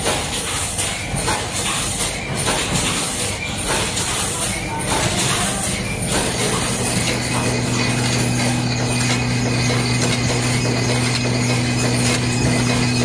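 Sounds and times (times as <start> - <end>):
mechanical clicking and clatter: 0.0 - 13.0
machine hum: 4.5 - 13.0.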